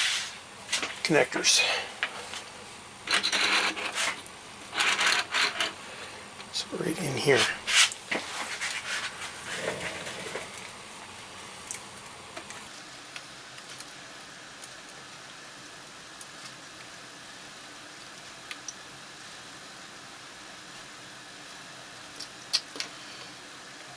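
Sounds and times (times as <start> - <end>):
rubbing and handling noise: 0.0 - 5.8, 6.4 - 10.8
faint hiss: 0.0 - 23.9.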